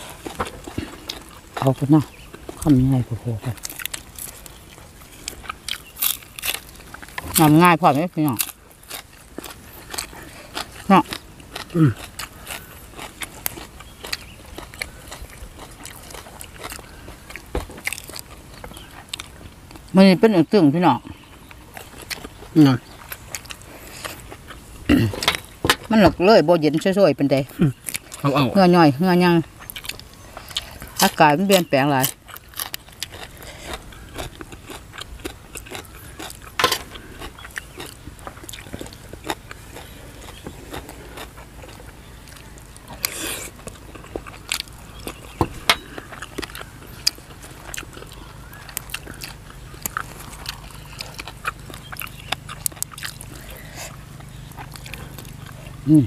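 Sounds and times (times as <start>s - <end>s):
people chewing food: 0.0s - 56.0s.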